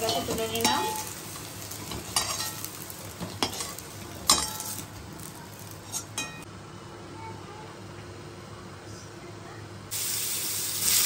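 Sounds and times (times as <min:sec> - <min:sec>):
metal utensil clinking on metal pan: 0:00.0 - 0:01.1, 0:01.9 - 0:02.6, 0:03.2 - 0:04.8
oil sizzling: 0:00.0 - 0:06.5, 0:09.9 - 0:11.0.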